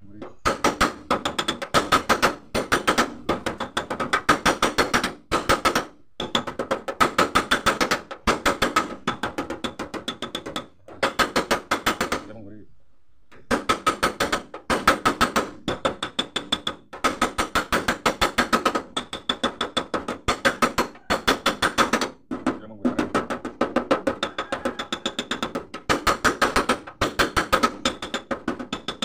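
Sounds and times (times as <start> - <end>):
rapid metal tapping on door panel: 0.3 - 12.3, 13.3 - 29.0.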